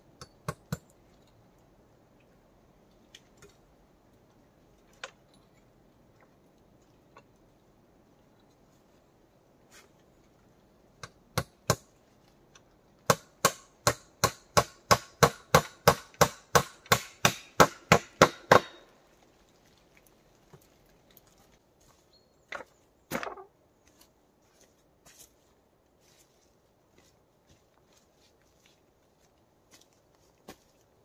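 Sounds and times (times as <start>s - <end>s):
tool striking wood: 13.1s - 18.9s.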